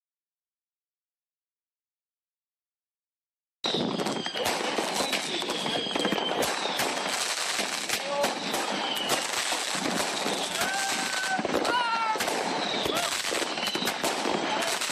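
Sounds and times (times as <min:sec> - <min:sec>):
firework bangs: 0:03.6 - 0:14.9
firework crackle: 0:03.6 - 0:14.9
thin firework whistle: 0:03.6 - 0:14.9.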